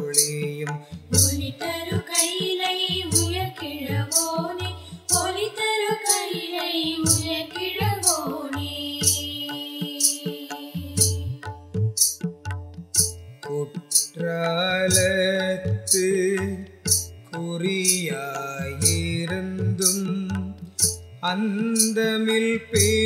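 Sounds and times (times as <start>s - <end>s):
person singing devotional melody: 0.0s - 12.0s, 13.4s - 23.0s
low pulsing beat: 2.9s - 5.4s.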